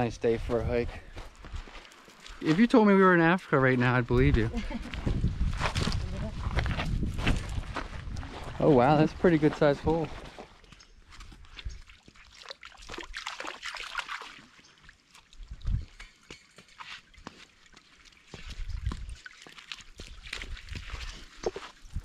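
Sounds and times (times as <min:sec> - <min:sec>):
creek water trickling and splashing: 0:00.0 - 0:04.8, 0:07.3 - 0:22.0
dull low thumps: 0:04.1 - 0:08.6.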